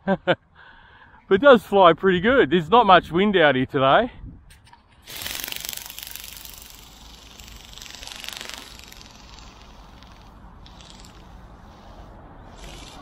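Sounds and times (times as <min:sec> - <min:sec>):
toy ornithopter rattling buzz: 0:05.0 - 0:13.0.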